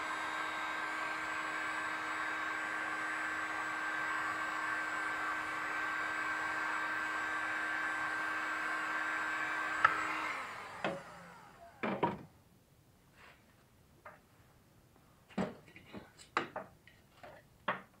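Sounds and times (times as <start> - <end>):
small motor whirring: 0.0 - 11.8.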